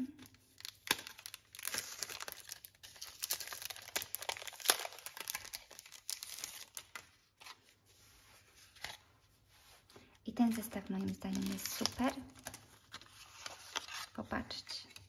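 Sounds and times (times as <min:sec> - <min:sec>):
plastic bags crinkling: 0:00.0 - 0:07.1, 0:10.4 - 0:14.6.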